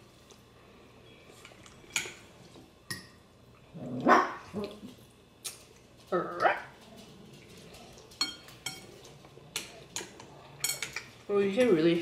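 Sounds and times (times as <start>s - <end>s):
chopsticks and fork clicking bowls: 7.8s - 11.8s.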